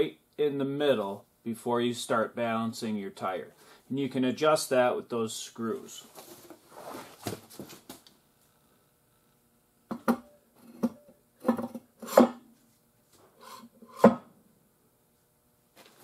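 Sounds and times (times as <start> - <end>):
faint scuffing: 5.9 - 8.1, 15.7 - 16.0.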